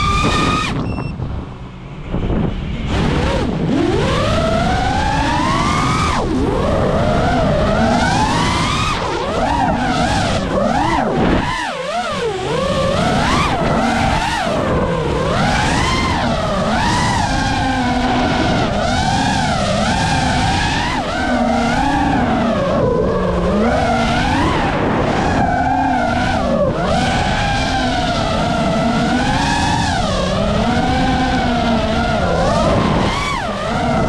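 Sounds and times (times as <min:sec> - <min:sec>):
drone motors whining: 0:00.0 - 0:34.0
steady rushing noise: 0:00.0 - 0:34.0.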